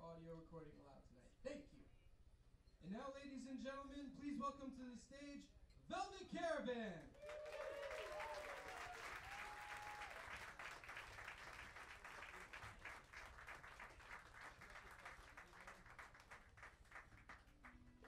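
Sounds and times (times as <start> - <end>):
audience applauding: 7.1 - 18.0.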